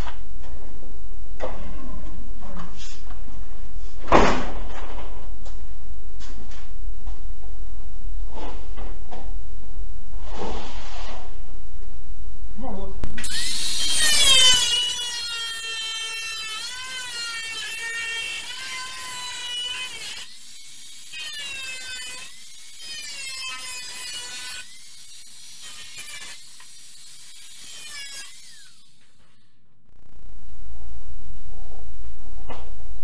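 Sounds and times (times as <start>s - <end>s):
angle grinder cutting metal: 13.0s - 29.3s.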